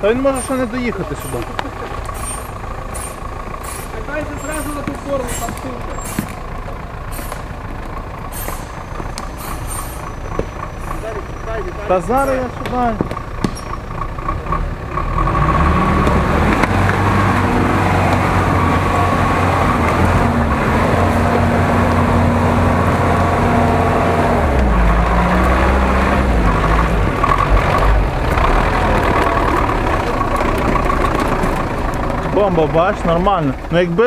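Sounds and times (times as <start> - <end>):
truck engine revving under load: 0.0 - 34.0.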